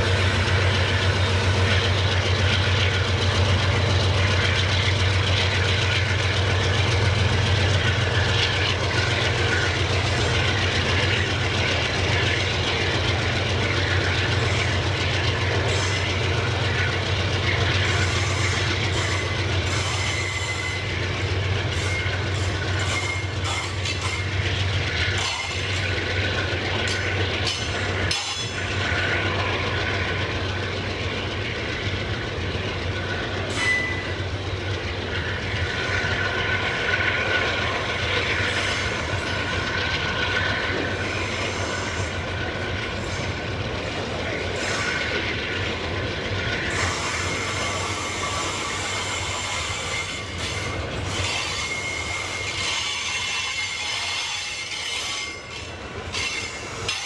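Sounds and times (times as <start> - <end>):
high wheel squeal: 0.0 - 26.0, 33.0 - 34.3, 46.6 - 57.0
freight train wagons rumbling: 0.0 - 57.0
wheels clacking on rail joints: 0.0 - 57.0.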